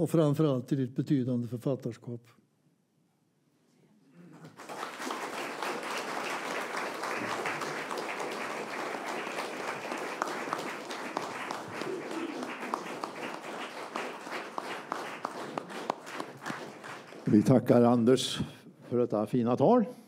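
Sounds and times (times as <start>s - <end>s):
audience applauding: 4.4s - 18.0s.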